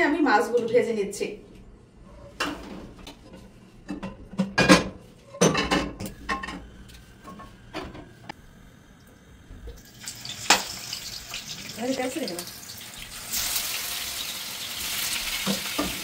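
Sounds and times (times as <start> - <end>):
cookware and utensils clattering: 2.3 - 6.6.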